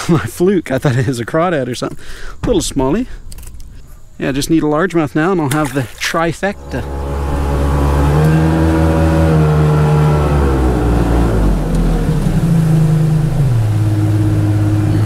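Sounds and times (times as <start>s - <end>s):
boat motor running: 6.5s - 15.0s.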